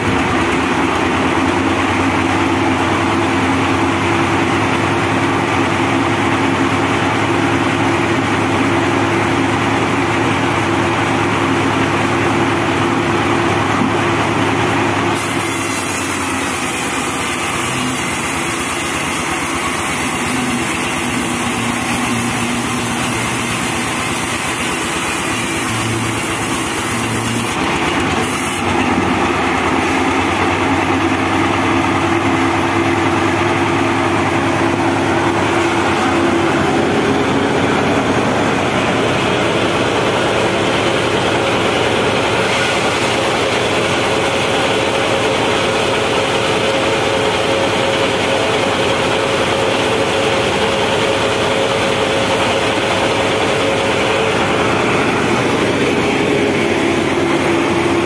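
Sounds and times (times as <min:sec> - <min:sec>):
diesel engine running: 0:00.0 - 0:58.0
band saw running free: 0:13.5 - 0:58.0.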